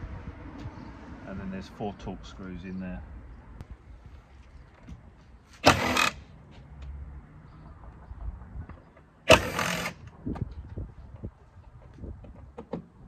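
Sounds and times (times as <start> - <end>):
cordless drill whirring: 5.6 - 6.2, 9.3 - 10.0.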